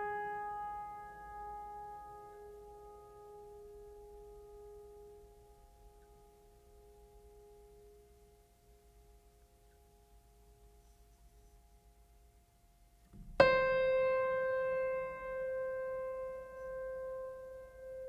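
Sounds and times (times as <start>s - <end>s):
piano note ringing: 13.2s - 18.0s.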